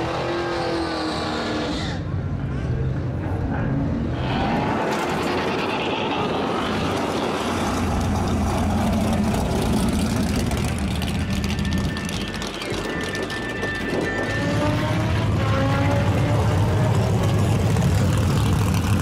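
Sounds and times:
car engine rumbling at low revs: 7.7s - 13.1s.

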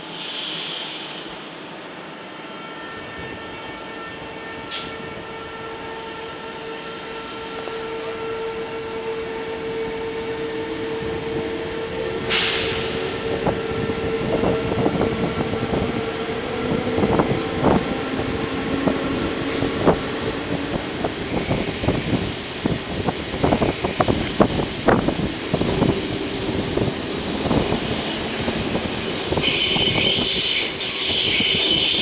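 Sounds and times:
air hiss: 0.0s - 1.6s, 12.3s - 13.0s
electric train hum: 0.0s - 32.0s.

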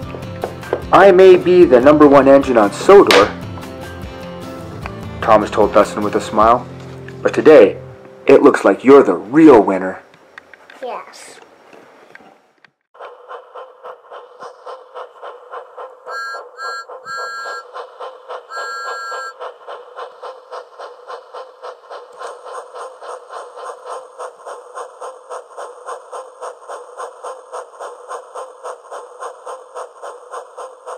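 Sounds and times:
steam train chugging: 0.0s - 10.1s, 13.0s - 30.9s
two-note train whistle: 16.1s - 17.7s, 18.5s - 19.4s.

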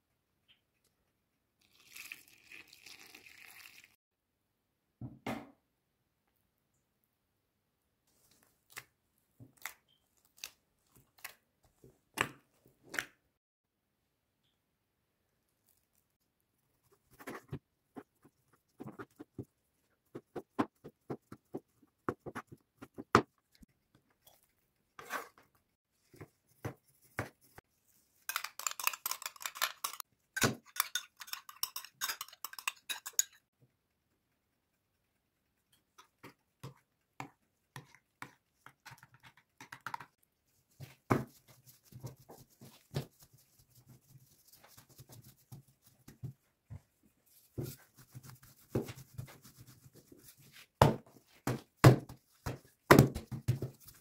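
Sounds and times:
metal spoon scraping ceramic bowl: 28.3s - 33.4s.

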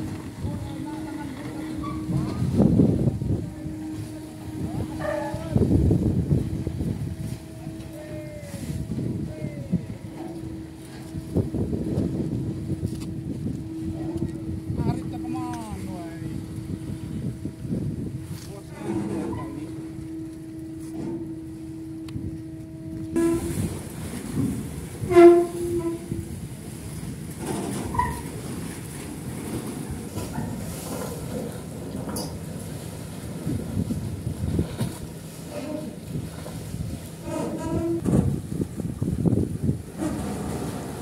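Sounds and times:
short pitched horn blasts: 0.0s - 15.0s, 15.6s - 26.4s
low rumble: 0.0s - 27.4s
ship engine humming: 0.0s - 41.0s.

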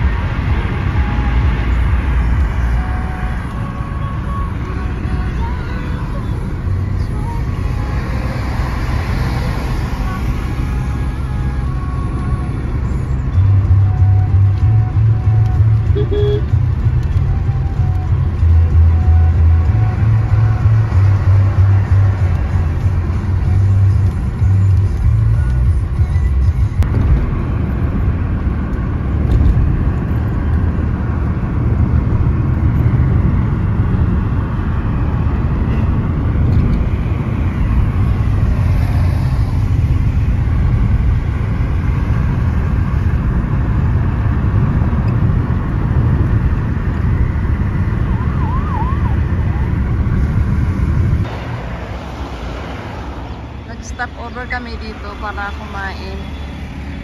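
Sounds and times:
car road rumble: 0.0s - 57.0s
tyres on wet road: 0.0s - 57.0s.

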